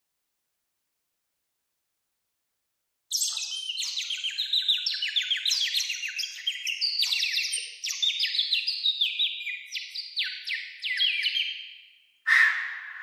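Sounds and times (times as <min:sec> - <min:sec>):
bird whistle chirps: 0:12.3 - 0:13.0.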